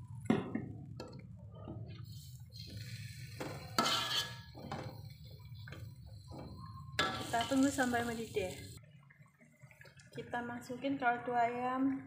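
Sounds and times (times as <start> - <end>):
metal spatula scraping a wok: 2.5 - 4.8.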